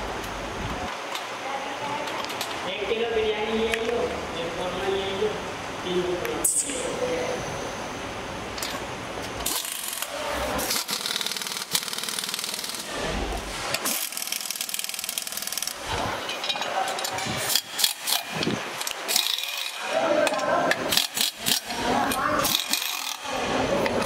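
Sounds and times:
hand tools clicking and scraping: 8.6s - 13.0s, 13.7s - 24.0s.

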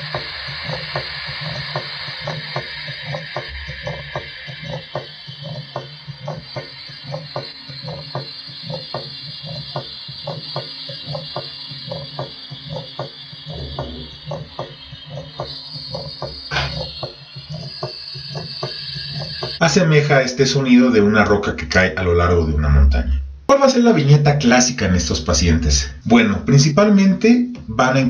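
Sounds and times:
heartbeat knocking sounds: 0.0s - 19.6s
low heart murmur: 13.5s - 14.6s.

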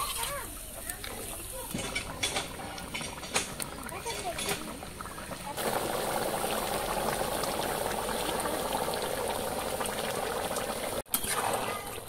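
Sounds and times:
curry bubbling at a boil: 0.0s - 12.0s.

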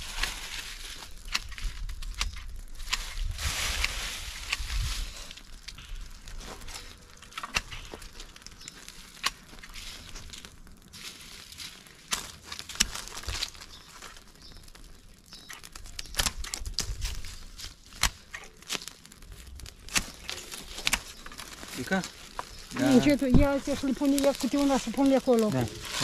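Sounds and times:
dry leaves crackling and rustling: 0.0s - 26.0s
twigs snapping: 0.0s - 26.0s.

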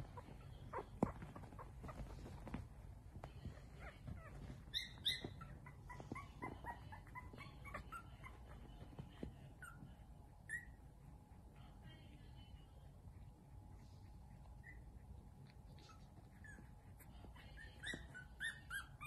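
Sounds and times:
puppies whimpering: 3.8s - 8.8s.

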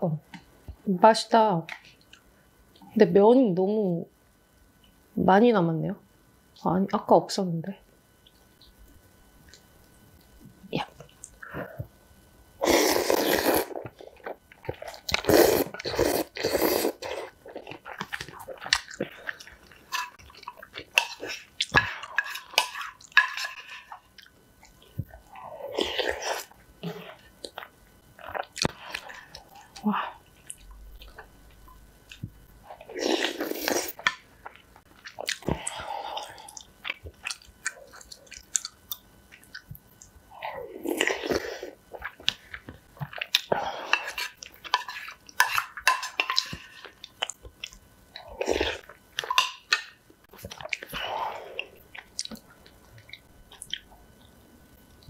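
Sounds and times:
chewing and slurping noodles: 12.6s - 31.3s, 32.1s - 39.8s.

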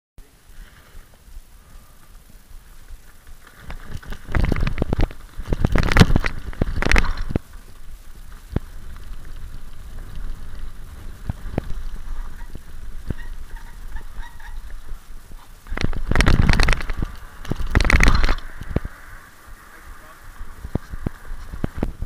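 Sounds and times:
mountain bike rattling downhill: 0.4s - 22.0s
scattered clicks: 3.1s - 13.3s, 15.6s - 18.9s
bike clatter: 3.1s - 14.8s.

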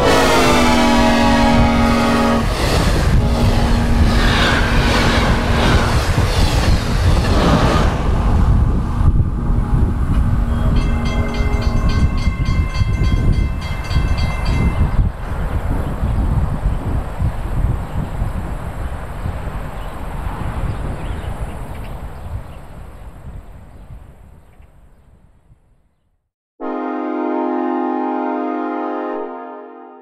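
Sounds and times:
train air horn chord: 0.0s - 5.8s, 9.4s - 12.5s, 26.6s - 30.0s
train wheels rumbling and clattering: 0.0s - 17.4s
high ringing tick: 10.1s - 15.0s.

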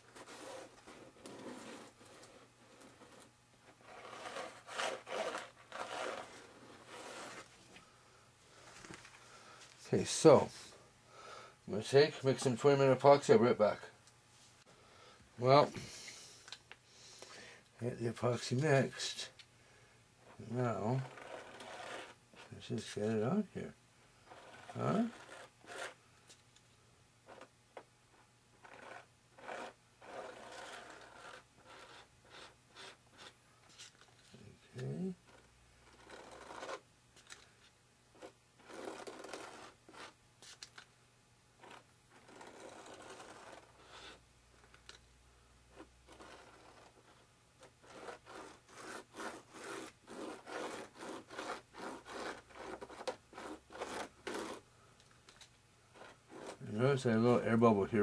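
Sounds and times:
stick scraping across foam: 0.0s - 7.5s, 20.4s - 23.2s, 24.2s - 26.0s, 28.6s - 36.8s, 38.2s - 40.7s, 41.6s - 44.2s, 45.8s - 54.6s, 55.9s - 57.4s
wooden stick scraping: 0.0s - 7.5s.

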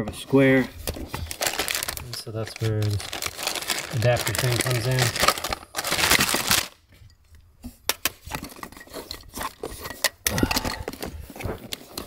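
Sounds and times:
plastic connectors clicking and rattling: 1.3s - 6.7s.

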